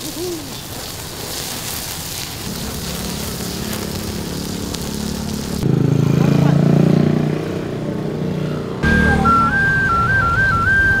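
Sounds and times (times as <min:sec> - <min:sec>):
seafood sizzling on griddle: 0:00.0 - 0:05.6
gas blowtorch hissing: 0:00.0 - 0:05.7.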